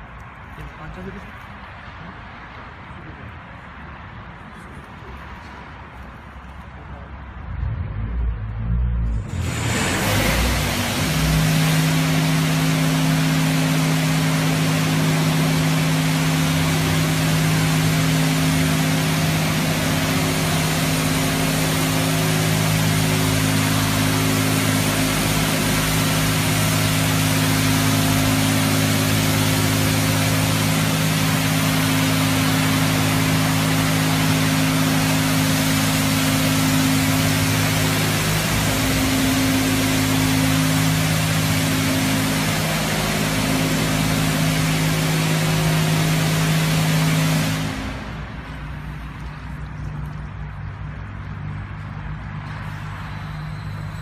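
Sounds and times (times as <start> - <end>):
high-pressure water spray hissing: 9.2 - 49.5
pump motor humming: 9.2 - 50.5.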